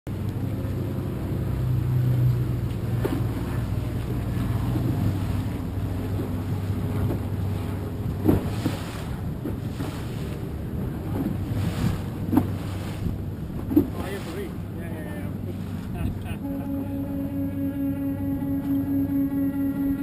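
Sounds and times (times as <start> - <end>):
water slapping against hull: 0.1 - 16.4
boat engine humming: 0.1 - 20.0
wind on microphone: 2.9 - 14.8.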